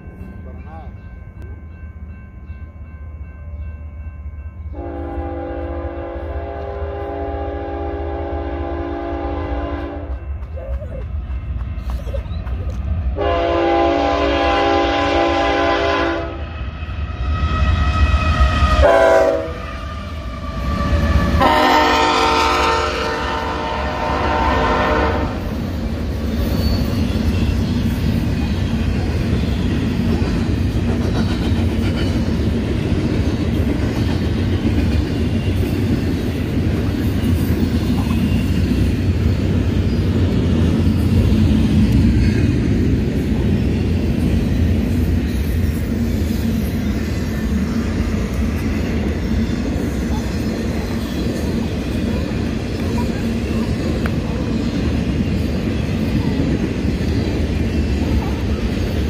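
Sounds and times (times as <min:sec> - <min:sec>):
train cars rumbling and rattling: 0:00.0 - 0:59.0
train horn blasts: 0:04.7 - 0:10.3, 0:13.2 - 0:16.4, 0:17.8 - 0:25.5.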